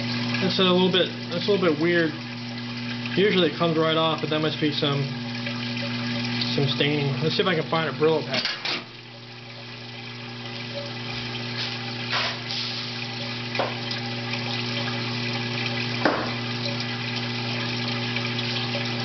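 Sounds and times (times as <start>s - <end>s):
electric pump humming: 0.0s - 19.0s
liquid splashing into basin: 0.0s - 19.0s.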